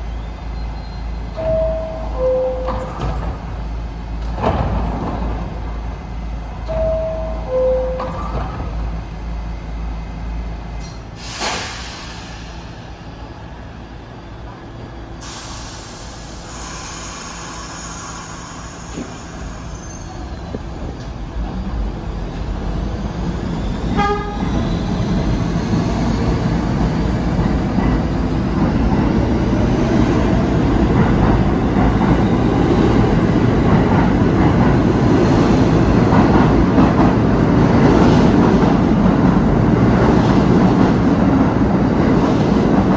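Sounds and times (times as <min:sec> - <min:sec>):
train doors closing: 0:00.0 - 0:09.7, 0:10.6 - 0:42.9
train rumble accelerating: 0:00.0 - 0:42.9
air hissing: 0:11.1 - 0:13.0, 0:15.2 - 0:20.2
train horn toot: 0:23.9 - 0:24.5.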